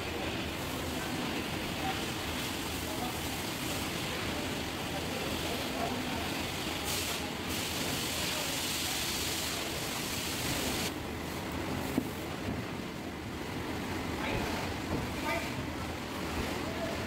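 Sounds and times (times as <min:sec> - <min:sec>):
rushing hiss of workshop noise: 0:00.0 - 0:13.0.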